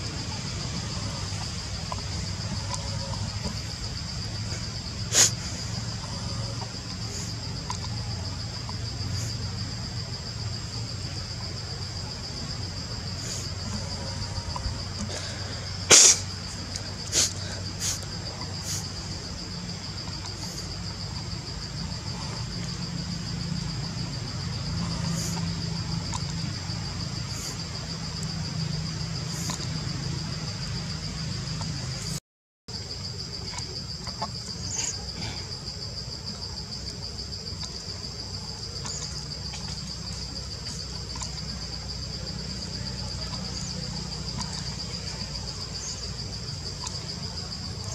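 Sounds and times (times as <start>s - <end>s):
insects chirring: 0.0s - 47.9s.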